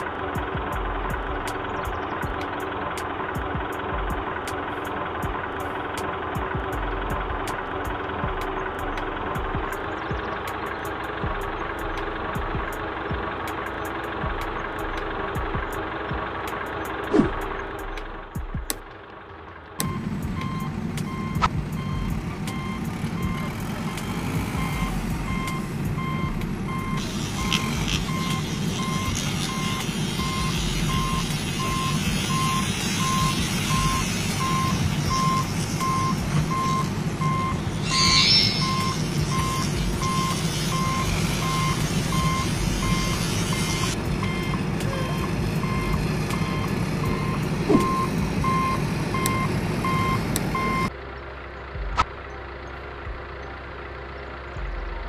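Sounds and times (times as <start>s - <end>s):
low engine rumble: 0.0s - 55.0s
reversing alarm beeps: 19.8s - 50.9s.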